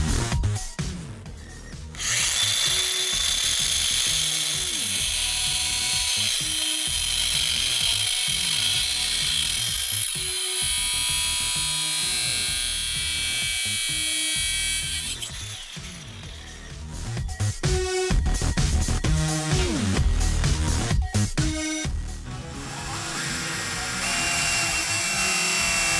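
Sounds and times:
music: 0.0s - 25.9s
angle grinder cutting metal: 1.9s - 18.1s, 22.3s - 25.9s.

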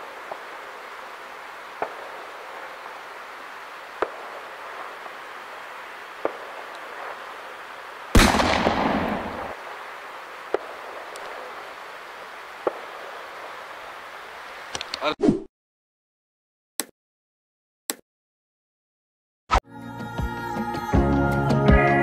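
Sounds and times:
steady hiss: 0.0s - 15.1s
firecracker cracks: 6.2s - 7.2s, 8.2s - 9.8s, 10.5s - 11.4s
loud firework bang: 8.2s - 9.6s.

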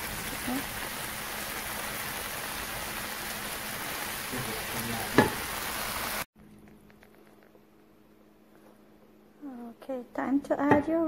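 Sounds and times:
vegetables sizzling in skillet: 0.0s - 6.3s.

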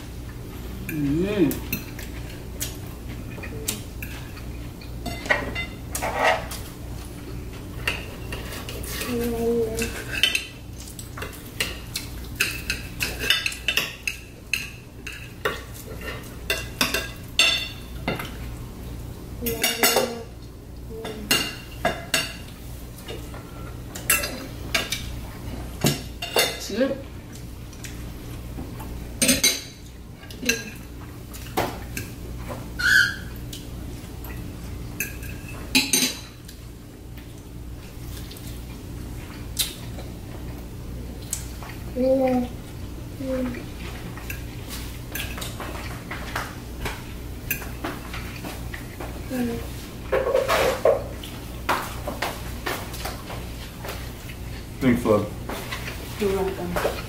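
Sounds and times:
cutlery clinking on plates: 29.2s - 32.2s, 50.1s - 51.1s.

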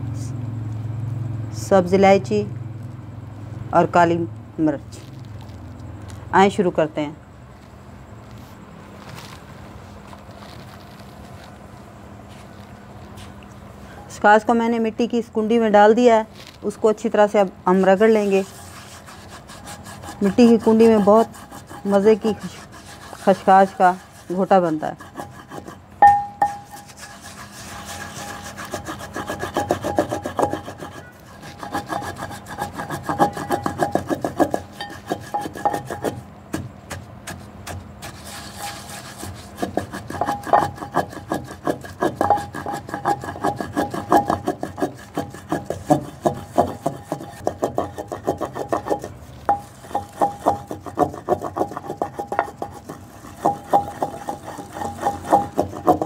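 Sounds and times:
pestle grinding in clay mortar: 17.8s - 56.0s.

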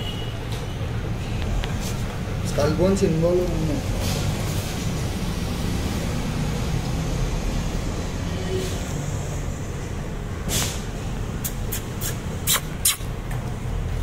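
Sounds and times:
vehicle engine rumbling: 0.0s - 14.0s
short hiss: 10.5s - 13.1s.

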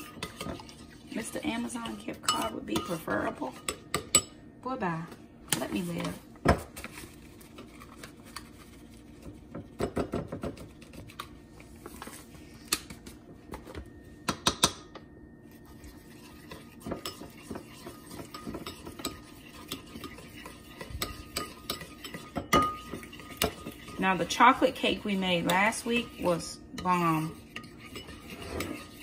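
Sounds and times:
spoon scraping ceramic bowl: 0.0s - 4.3s, 15.6s - 29.0s.

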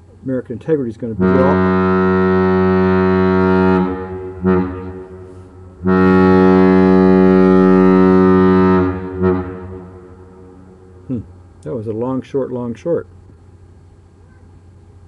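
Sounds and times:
ship's horn blasts: 1.1s - 11.5s.

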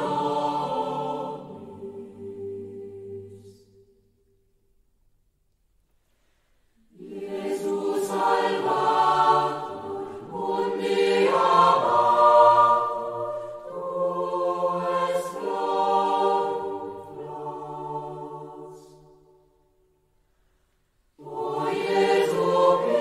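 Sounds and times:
choir singing unaccompanied chant: 0.0s - 3.8s, 6.9s - 19.4s, 21.2s - 23.0s.

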